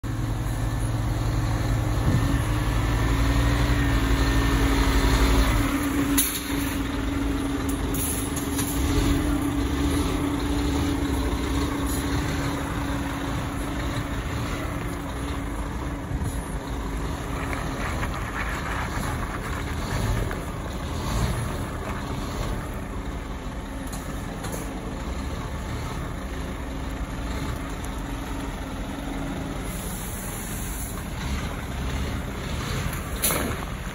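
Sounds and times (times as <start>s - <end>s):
diesel truck engine idling: 0.0s - 33.9s.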